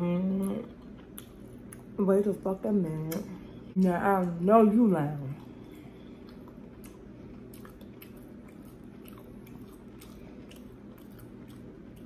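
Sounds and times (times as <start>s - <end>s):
close chewing mouth sounds: 5.3s - 12.0s.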